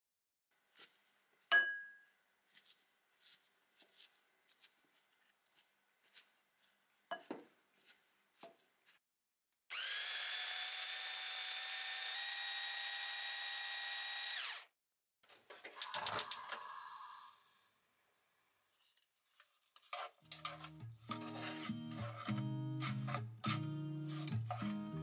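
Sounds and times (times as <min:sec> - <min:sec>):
electric food chopper whirring: 0:09.7 - 0:14.8.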